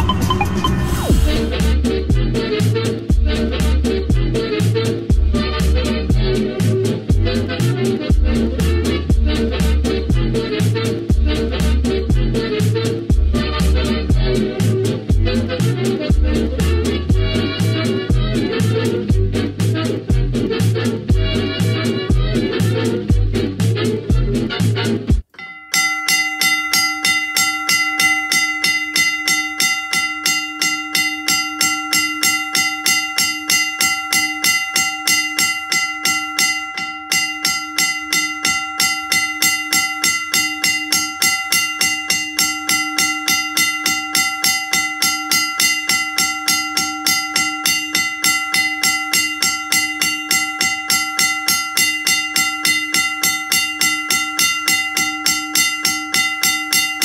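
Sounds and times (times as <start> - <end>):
railroad crossing bell ringing: 25.4 - 57.0.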